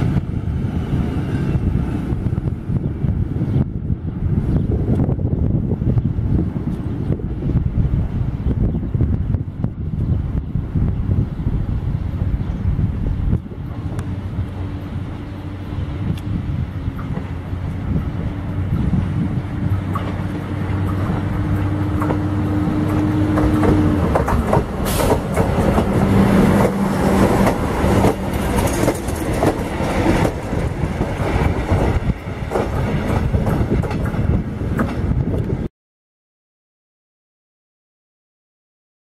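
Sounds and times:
diesel locomotive engine: 0:00.0 - 0:35.7
train wheels clicking over rail joints: 0:18.8 - 0:35.6.

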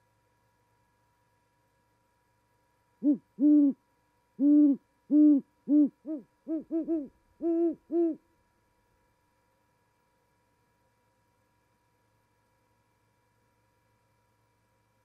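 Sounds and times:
owls hooting: 0:03.0 - 0:03.8, 0:04.4 - 0:08.2.

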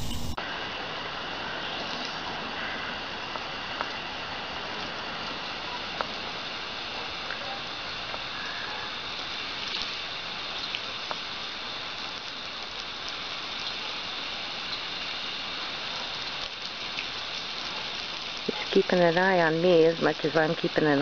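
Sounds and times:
hose water splashing on grass: 0:09.0 - 0:21.0.

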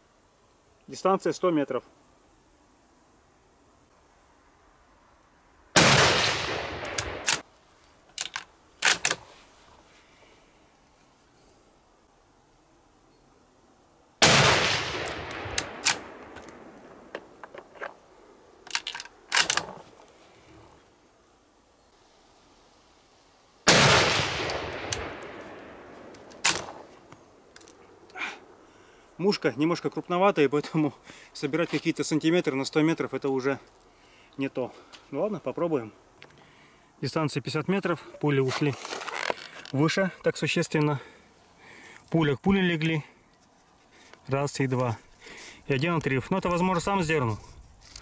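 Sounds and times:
rifle shot with echo: 0:05.8 - 0:07.4, 0:14.2 - 0:17.1, 0:23.7 - 0:26.8
rifle bolt clicking: 0:06.8 - 0:07.4, 0:15.0 - 0:16.6, 0:18.7 - 0:19.7, 0:24.4 - 0:25.3.

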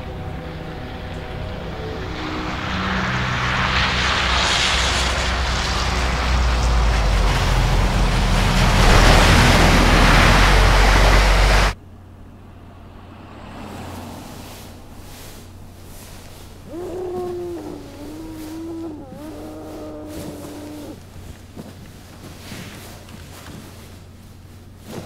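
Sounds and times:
rising rushing sound effect: 0:01.0 - 0:11.8.

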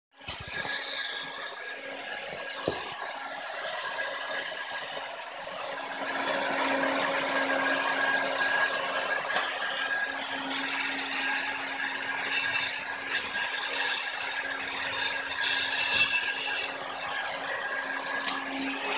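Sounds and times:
hot-air blower hissing: 0:00.2 - 0:18.9
motor hum: 0:00.2 - 0:18.9.

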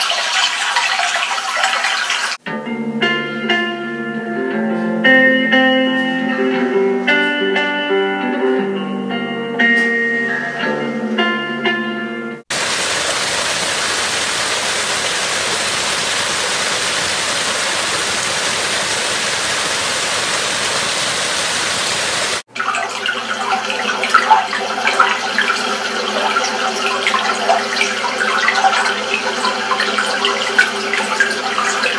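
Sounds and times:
brook trickling and gurgling: 0:00.0 - 0:02.4, 0:12.5 - 0:31.9.

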